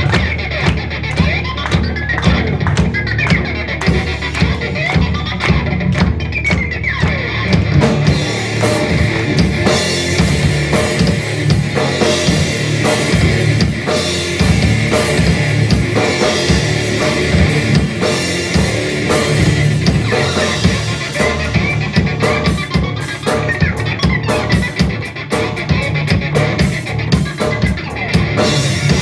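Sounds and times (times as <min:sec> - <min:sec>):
bass guitar: 0:00.0 - 0:29.0
drum kit: 0:00.0 - 0:29.0
electric guitar: 0:00.0 - 0:29.0.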